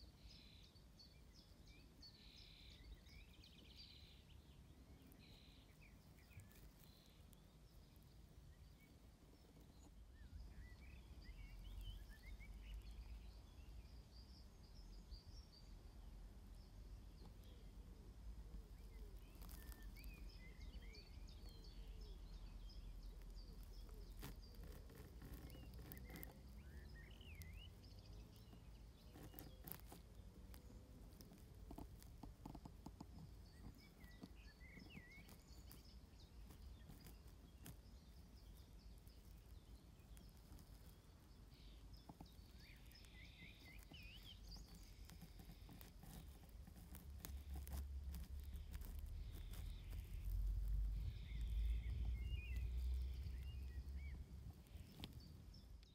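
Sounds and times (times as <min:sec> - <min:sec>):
distant birds chirping: 0:00.0 - 0:55.9
low wind rumble on microphone: 0:30.6 - 0:55.7.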